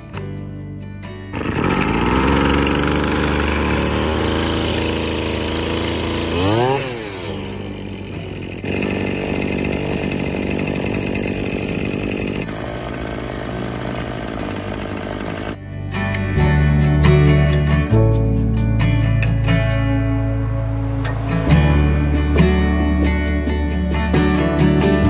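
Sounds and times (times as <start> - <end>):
string trimmer engine running: 1.3 - 15.6.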